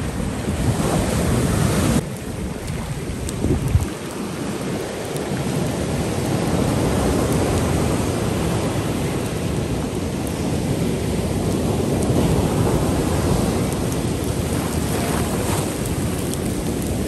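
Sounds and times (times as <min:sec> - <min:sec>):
ocean surf breaking: 0:00.0 - 0:17.0.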